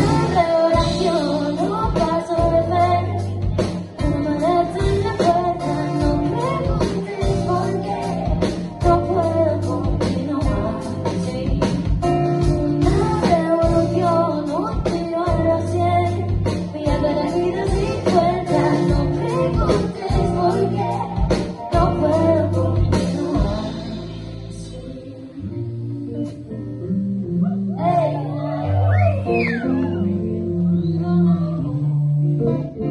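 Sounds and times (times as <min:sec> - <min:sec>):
drum kit beat: 0:00.0 - 0:24.8
woman singing: 0:00.0 - 0:26.8, 0:27.7 - 0:32.9
bass guitar: 0:00.0 - 0:32.9.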